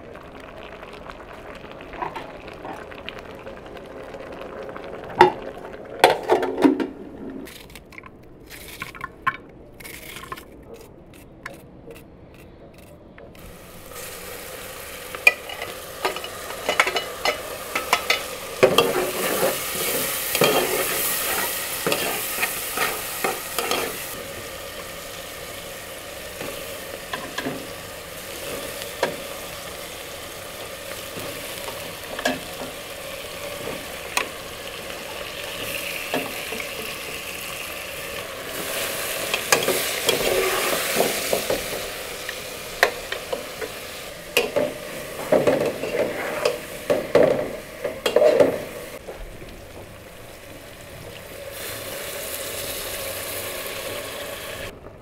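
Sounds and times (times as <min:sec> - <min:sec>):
metal ladle scraping steel pot: 0:38.5 - 0:41.8, 0:44.4 - 0:48.7.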